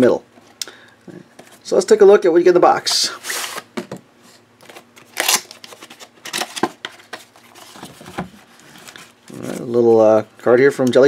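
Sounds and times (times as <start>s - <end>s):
cardboard scraping and rustling: 4.7s - 9.8s.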